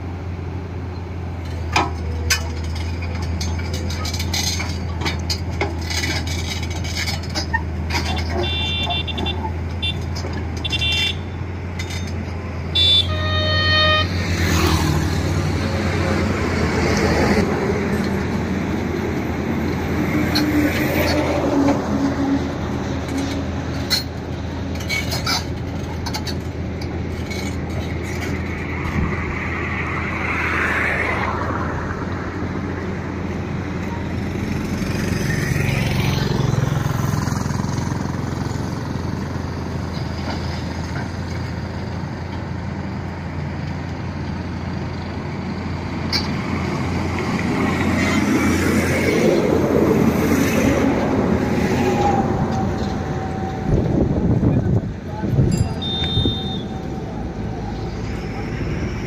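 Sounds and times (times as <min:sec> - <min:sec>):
road traffic: 0:00.0 - 0:59.0
vehicle horn tooting: 0:08.3 - 0:11.4, 0:12.7 - 0:14.2, 0:55.7 - 0:57.0.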